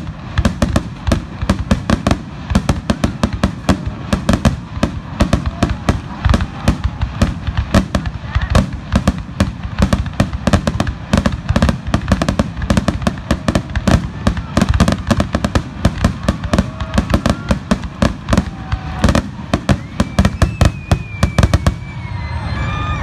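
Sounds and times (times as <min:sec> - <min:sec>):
fireworks bursting: 0:00.0 - 0:23.0.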